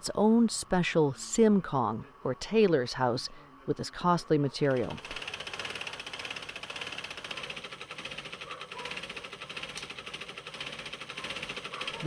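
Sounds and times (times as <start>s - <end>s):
sewing machine clattering: 4.7s - 12.0s.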